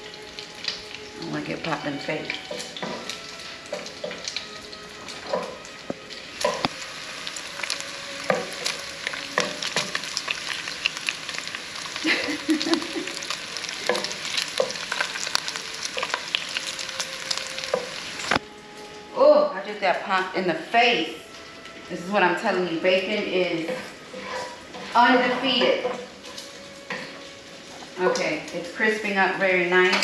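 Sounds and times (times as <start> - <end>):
bacon sizzling and popping: 0.0 - 30.0
wooden spatula stirring: 7.4 - 10.9, 11.9 - 18.3, 22.4 - 28.4.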